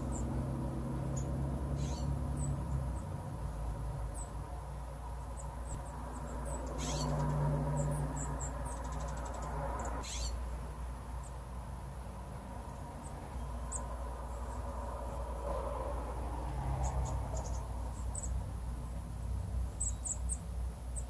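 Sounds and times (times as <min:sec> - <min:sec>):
harsh buzzy bird calls: 0:00.0 - 0:11.5, 0:13.0 - 0:18.6
birds chirping: 0:00.0 - 0:21.0
bird ticks: 0:06.2 - 0:10.2.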